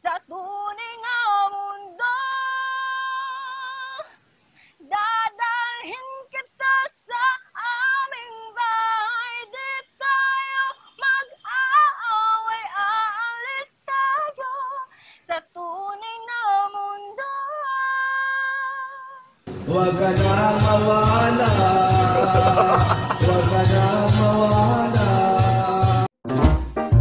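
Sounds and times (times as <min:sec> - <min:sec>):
woman singing unaccompanied: 0:00.0 - 0:04.2, 0:04.8 - 0:19.4.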